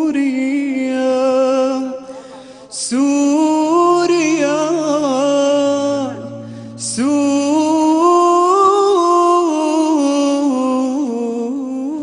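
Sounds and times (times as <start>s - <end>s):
man singing long notes: 0.0s - 12.0s
low steady drone: 3.3s - 9.7s.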